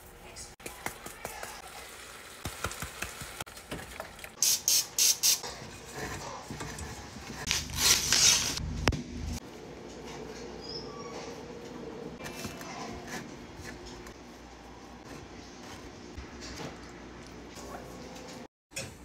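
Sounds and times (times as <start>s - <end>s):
paper wrapper tearing: 7.5s - 8.6s.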